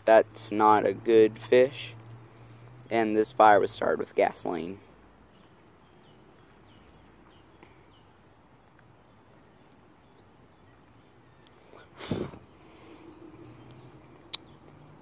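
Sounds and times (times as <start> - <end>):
small bird chirping: 5.3 - 12.0, 12.6 - 15.0.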